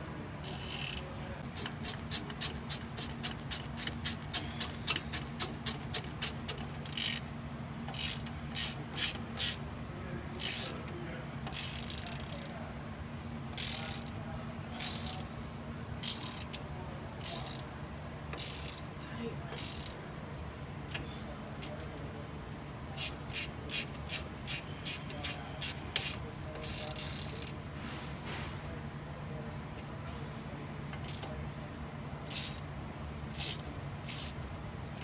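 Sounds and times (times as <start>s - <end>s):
steady low hum: 0.0s - 35.0s
hand ratchet clicking: 0.4s - 7.3s, 7.9s - 9.6s, 10.4s - 10.8s, 11.5s - 12.6s, 13.5s - 14.2s, 14.8s - 15.3s, 16.0s - 16.6s, 17.2s - 17.7s, 18.3s - 18.9s, 19.6s - 20.0s, 23.0s - 27.5s, 31.0s - 31.3s, 32.3s - 32.6s, 33.3s - 35.0s.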